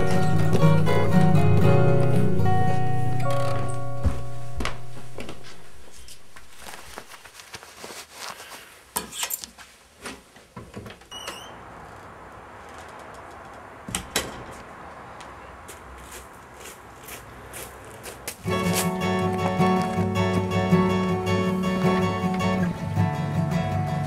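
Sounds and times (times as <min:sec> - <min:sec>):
guitar music: 0:00.0 - 0:06.5, 0:18.4 - 0:24.0
door squeak: 0:03.2 - 0:04.3, 0:11.1 - 0:11.7
door shutting: 0:03.2 - 0:04.9, 0:10.6 - 0:12.2.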